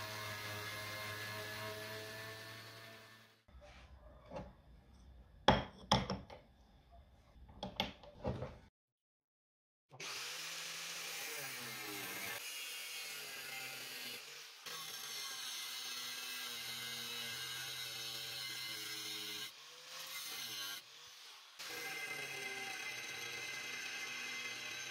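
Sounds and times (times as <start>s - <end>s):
angle grinder cutting steel tube: 0.0s - 3.5s, 10.0s - 24.9s.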